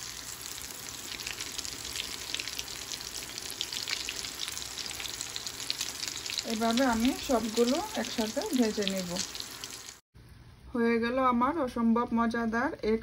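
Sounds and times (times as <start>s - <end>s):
oil sizzling in a pan: 0.0s - 10.0s.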